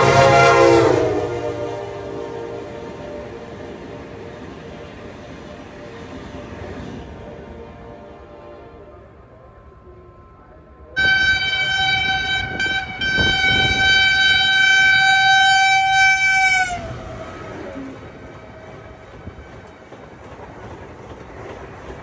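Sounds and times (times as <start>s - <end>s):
locomotive horn blast: 0.0s - 4.2s, 5.6s - 9.3s, 10.0s - 17.5s
train rumble and wheel clatter: 0.0s - 22.0s.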